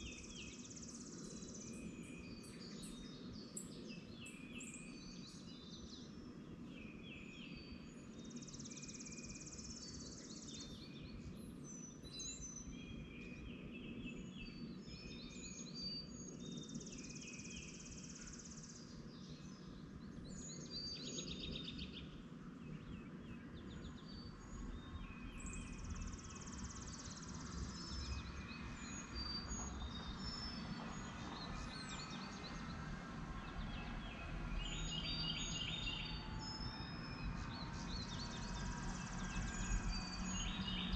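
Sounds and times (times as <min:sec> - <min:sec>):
birds chirping and singing: 0:33.5 - 0:40.9.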